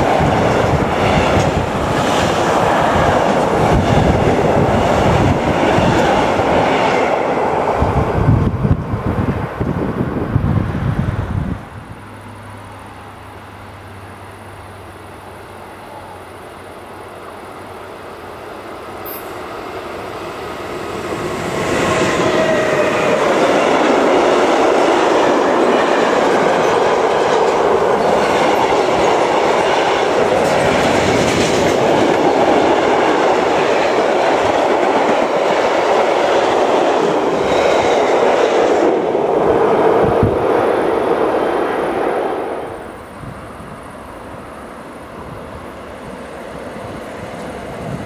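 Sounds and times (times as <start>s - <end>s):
freight train passing: 0.0s - 48.0s.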